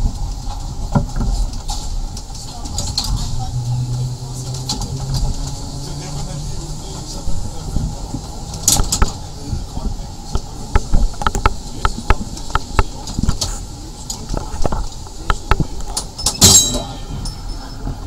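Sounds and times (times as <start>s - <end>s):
clicks and rattles of wheels: 0.0s - 18.0s
low rumble: 0.0s - 18.0s
tram running on track: 0.0s - 18.0s.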